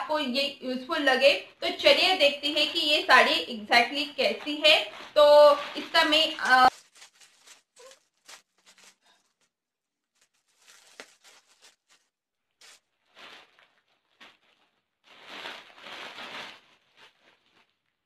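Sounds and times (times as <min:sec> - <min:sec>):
plastic bag tearing and crinkling: 0:04.2 - 0:18.0.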